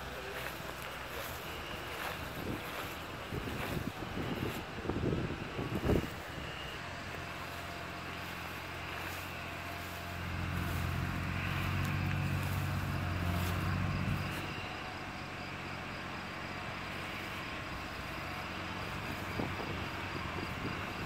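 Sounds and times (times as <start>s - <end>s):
tractor diesel engine running: 0.0s - 21.0s
wind gust on microphone: 1.8s - 6.6s, 18.9s - 21.0s.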